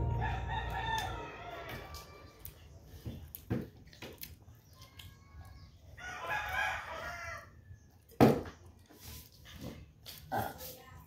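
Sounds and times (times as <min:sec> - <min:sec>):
rooster crowing: 0:00.0 - 0:02.5.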